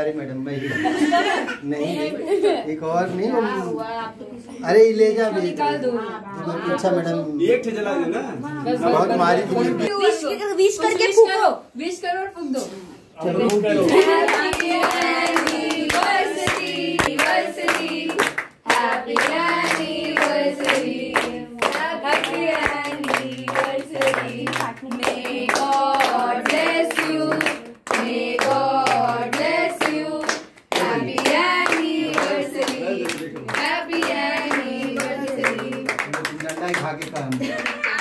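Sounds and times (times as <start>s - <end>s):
group singing together: 13.2s - 36.2s
people clapping along: 13.4s - 38.0s.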